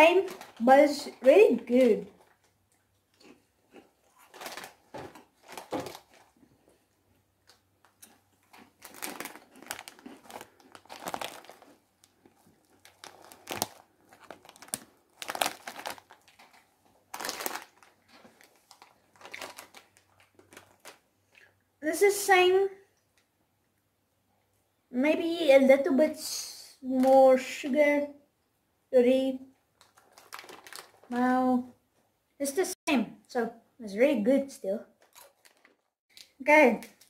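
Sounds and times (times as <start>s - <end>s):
snack bag crinkling: 0.0s - 1.1s, 1.8s - 21.6s, 29.8s - 31.2s, 35.0s - 37.0s
wrapper rustling: 0.0s - 2.6s, 4.1s - 6.8s, 7.5s - 21.5s, 29.8s - 31.4s, 35.0s - 37.0s.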